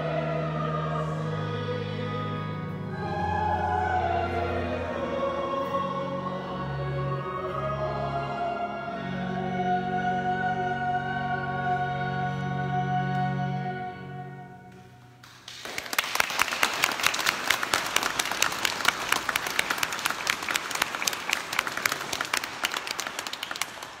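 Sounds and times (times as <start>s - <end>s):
congregation applauding: 15.2s - 24.0s.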